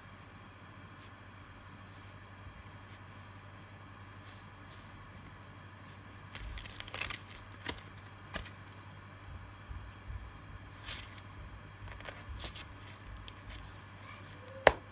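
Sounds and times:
cloth hand wrap rustling: 10.7s - 14.6s.

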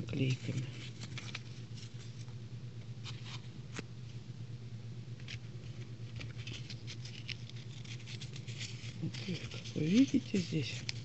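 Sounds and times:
plastic and paper rustling: 0.0s - 2.3s, 5.2s - 11.0s
steady low hum: 0.0s - 11.0s.

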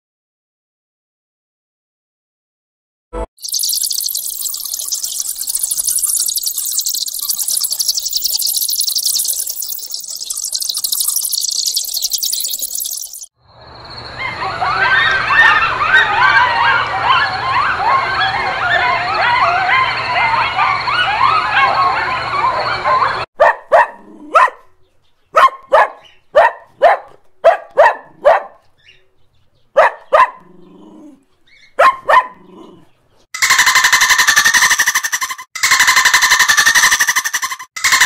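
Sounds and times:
coyotes yipping and howling: 3.4s - 13.3s, 14.1s - 23.3s, 33.4s - 38.0s
dog barking: 15.3s - 24.7s, 25.3s - 28.6s, 29.7s - 30.6s, 31.8s - 32.8s.

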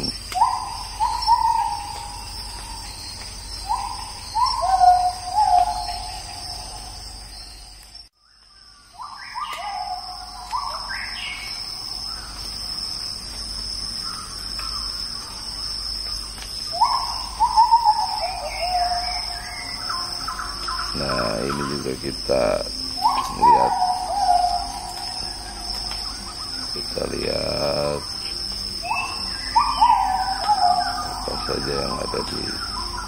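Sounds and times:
birds whistling: 0.0s - 7.8s, 8.8s - 12.5s, 16.6s - 33.0s
insects droning: 0.0s - 33.0s.

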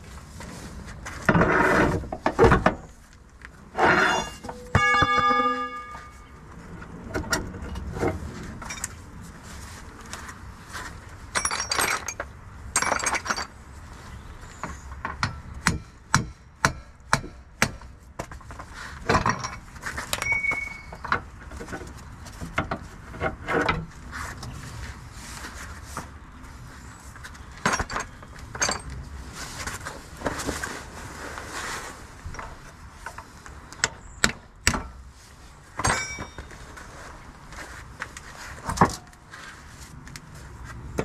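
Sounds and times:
metal tools clinking: 3.8s - 6.3s, 11.3s - 13.5s, 19.2s - 21.1s, 35.8s - 36.6s
sharp metal strikes: 4.2s - 6.2s.

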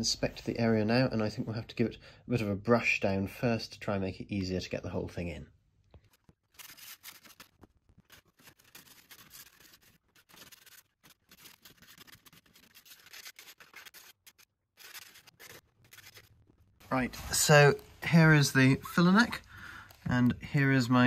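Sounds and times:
brush scrubbing: 8.0s - 16.4s.

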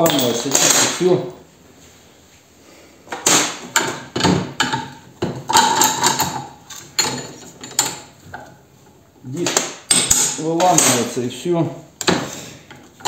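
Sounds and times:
metal tools clanking: 0.0s - 1.4s, 3.8s - 8.6s.

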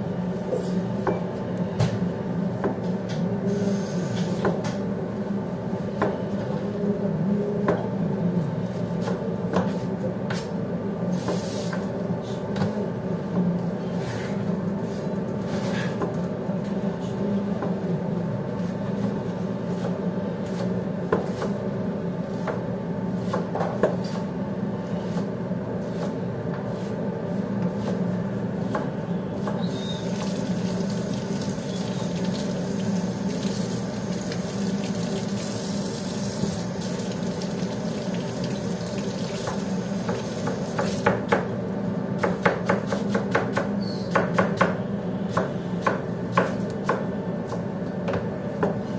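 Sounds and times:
low machine hum: 0.0s - 11.3s, 11.9s - 48.9s
water running from a tap: 30.0s - 40.4s.

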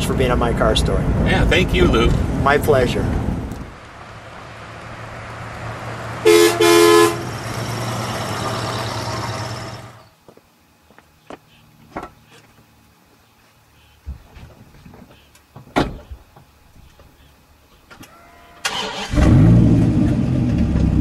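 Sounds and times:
car driving past: 3.2s - 10.0s
car horn tooting: 6.2s - 7.4s.

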